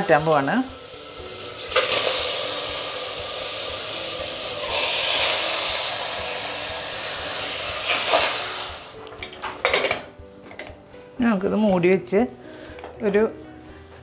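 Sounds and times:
loud sizzling hiss: 0.0 - 10.0.

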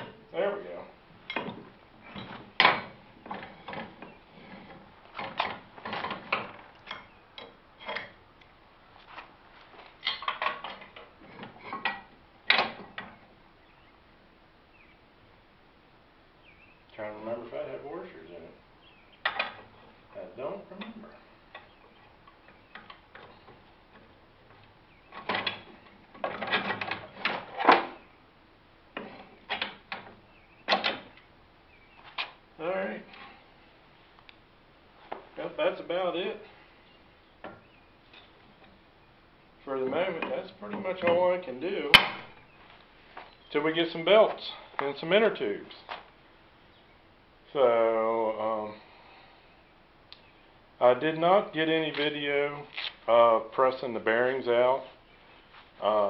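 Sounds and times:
metallic clanks and knocks: 1.2 - 8.2, 10.0 - 13.2, 22.5 - 28.0.

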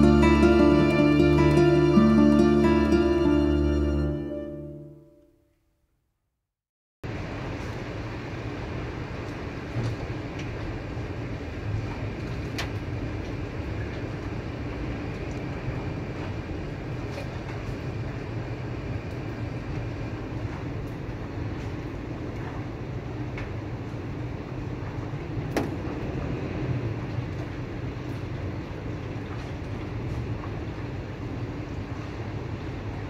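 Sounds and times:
steady rain: 0.0 - 4.0, 7.1 - 33.0
low city rumble: 0.0 - 5.2, 7.0 - 33.0
raindrops ticking nearby: 12.0 - 18.3.

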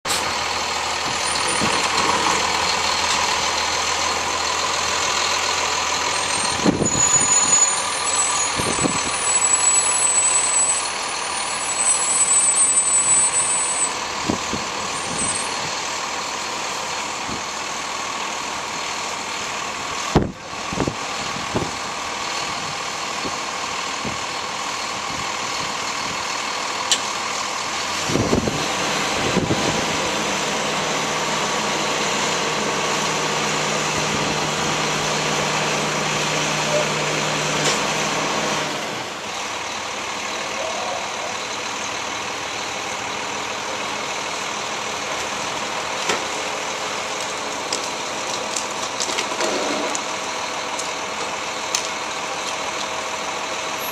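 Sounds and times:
garbage truck diesel engine: 0.0 - 53.9
high squeal: 6.1 - 14.0, 14.9 - 15.7.

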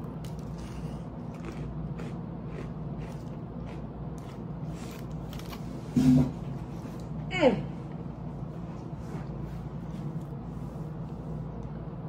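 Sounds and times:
steady low hum: 0.0 - 12.0
soft dry chewing crunches: 0.1 - 5.6.

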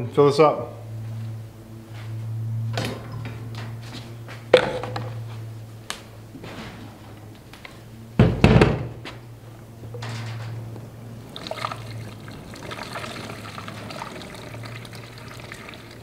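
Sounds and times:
fuel pouring: 11.3 - 16.0.

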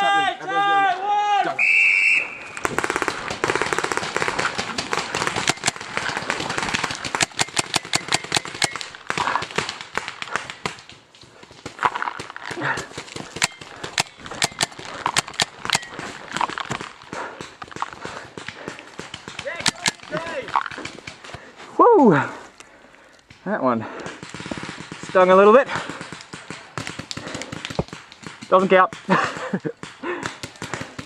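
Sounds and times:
paintball markers popping: 2.5 - 21.4, 26.0 - 31.0.

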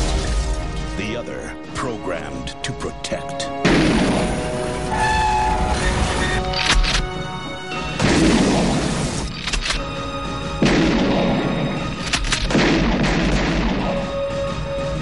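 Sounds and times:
action trailer score: 0.0 - 15.0
heavy booming hits: 3.6 - 4.7, 8.0 - 9.2, 10.6 - 14.4
sharp gunshot-like cracks: 10.6 - 11.5, 12.3 - 14.0.

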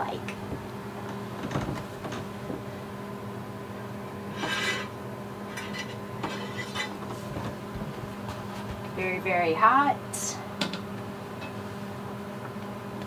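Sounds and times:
steady hum: 0.0 - 13.0
metal pan scraping: 4.3 - 5.0, 5.6 - 7.0.

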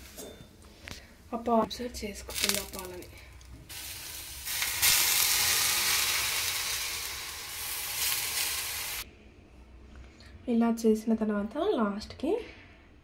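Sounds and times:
milk sizzling in hot ghee: 2.0 - 9.0.

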